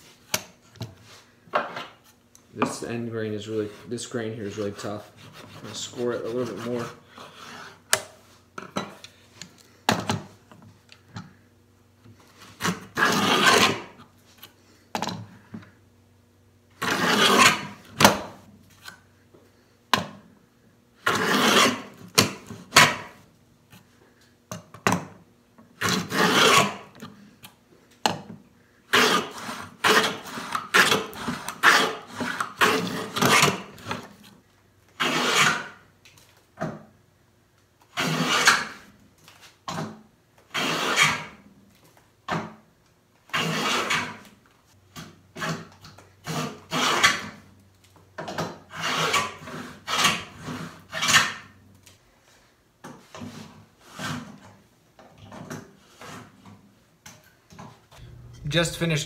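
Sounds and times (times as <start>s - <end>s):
rasping cutting strokes on wood: 3.5s - 7.9s, 12.6s - 14.0s, 16.8s - 17.8s, 21.0s - 21.9s, 25.8s - 26.8s, 28.9s - 33.6s, 35.0s - 35.8s, 43.3s - 44.2s, 48.7s - 51.4s.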